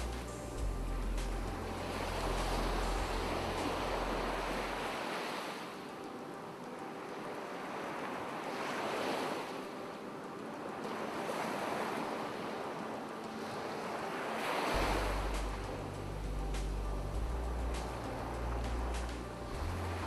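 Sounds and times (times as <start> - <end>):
low steady drone: 0.0 - 5.0, 14.7 - 20.0
surf washing on shore: 0.0 - 20.0.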